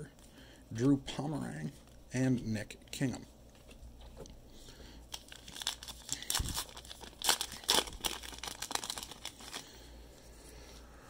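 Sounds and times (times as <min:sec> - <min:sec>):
wrapper crinkling: 0:05.1 - 0:09.8.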